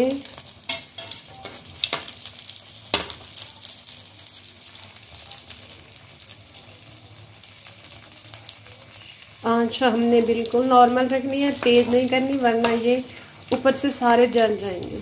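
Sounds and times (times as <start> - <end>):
cutlets sizzling in hot oil: 0.0 - 15.0.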